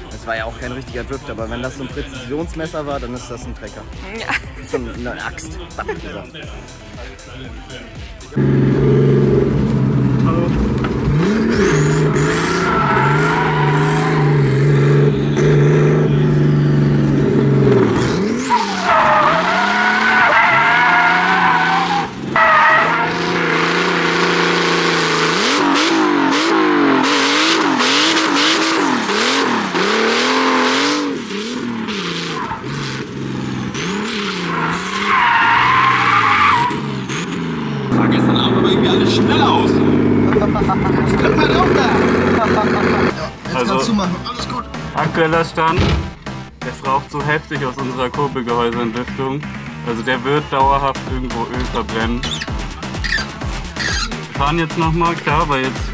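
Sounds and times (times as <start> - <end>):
car engine revving hard: 8.4 - 43.7
tyres squealing: 11.1 - 16.0, 17.6 - 23.9, 33.8 - 37.2, 52.0 - 54.3.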